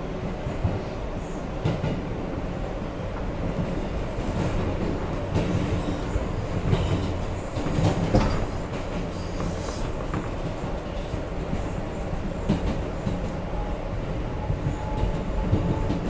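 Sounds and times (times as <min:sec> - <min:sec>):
subway train wheels rumbling: 0:00.0 - 0:16.0
rail joints clicking: 0:03.1 - 0:13.5.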